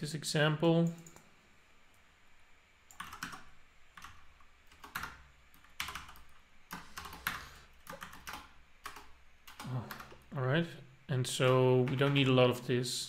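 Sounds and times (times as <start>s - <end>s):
typing on computer keyboard: 2.9s - 10.2s.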